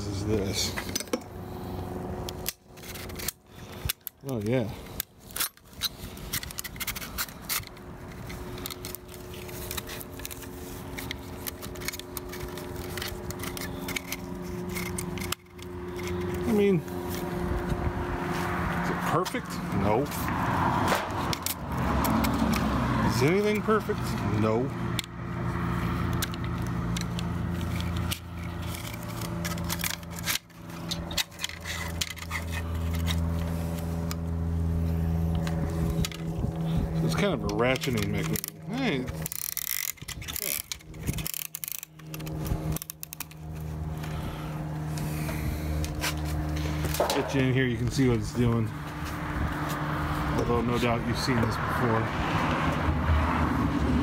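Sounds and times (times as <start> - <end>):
low hum: 0.0 - 23.0, 24.0 - 50.8
ratchet metal clicks and scraping: 2.2 - 17.5, 20.9 - 34.4, 35.2 - 52.0
metal clicks and clinks: 37.1 - 43.5.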